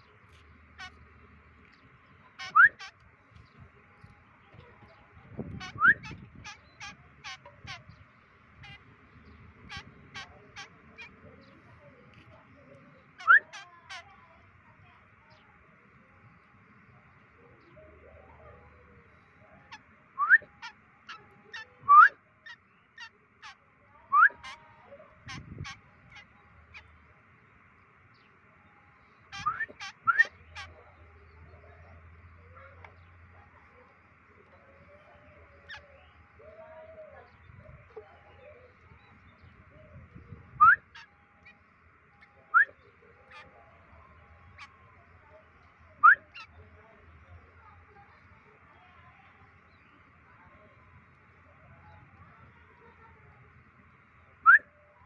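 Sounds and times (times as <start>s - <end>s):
young bird begging calls: 0.7s - 1.1s, 2.1s - 3.6s, 4.6s - 11.7s, 12.7s - 14.4s, 17.6s - 27.0s, 29.2s - 48.0s.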